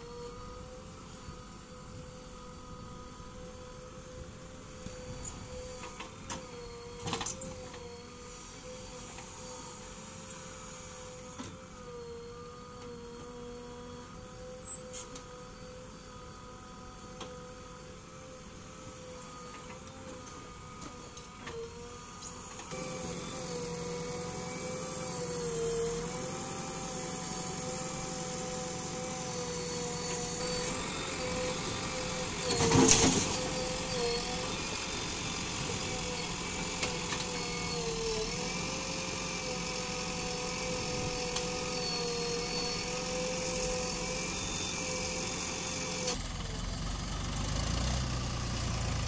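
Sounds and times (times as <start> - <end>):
diesel engine running: 45.2 - 49.0.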